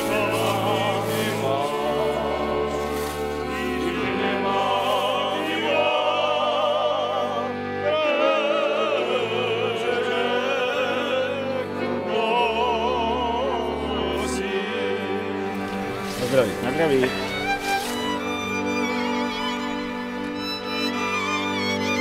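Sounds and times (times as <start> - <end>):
men singing: 0.0 - 17.2
violins playing: 0.0 - 22.0.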